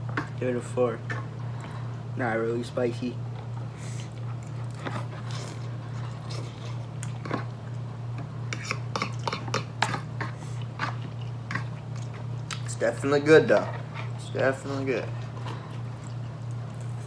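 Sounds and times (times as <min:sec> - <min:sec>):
steady low hum: 0:00.0 - 0:17.0
chewing: 0:04.0 - 0:07.8, 0:08.5 - 0:12.7, 0:15.0 - 0:17.0.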